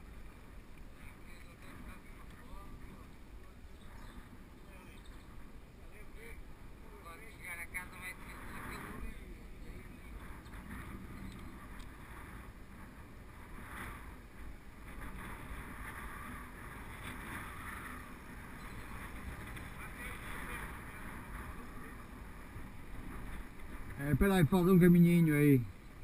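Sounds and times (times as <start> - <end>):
bike tyres rolling on asphalt: 0.0 - 26.0
wind rushing over microphone: 0.0 - 26.0.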